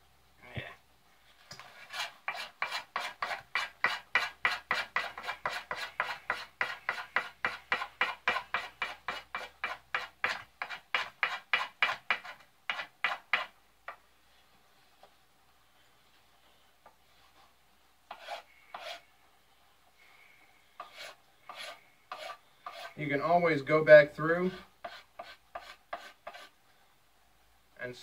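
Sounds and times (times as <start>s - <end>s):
knife scraping wooden handle: 1.5s - 13.5s, 18.1s - 19.1s, 20.8s - 23.0s, 24.5s - 26.5s.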